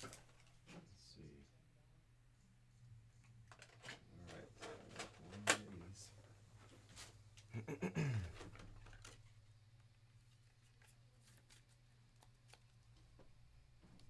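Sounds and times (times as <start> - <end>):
card holder rustle and clatter: 3.5 - 5.7.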